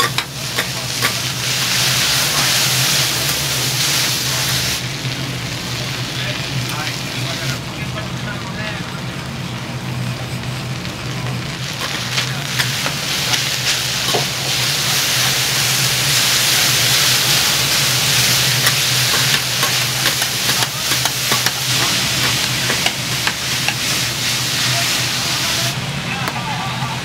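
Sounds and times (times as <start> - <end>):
food sizzling on griddle: 0.0 - 27.0.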